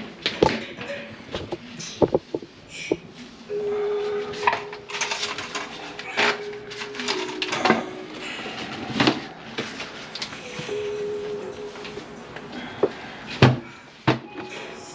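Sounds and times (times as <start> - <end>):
steady hum: 1.4 - 14.9.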